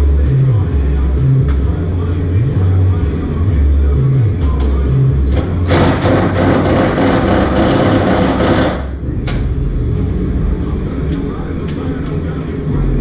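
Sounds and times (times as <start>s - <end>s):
music with deep bass line: 0.0s - 13.0s
power tool clattering: 5.4s - 8.9s.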